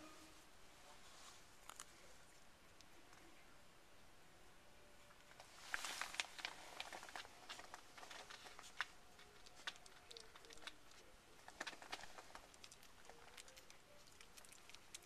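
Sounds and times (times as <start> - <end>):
puppies suckling clicks: 6.4 - 15.0.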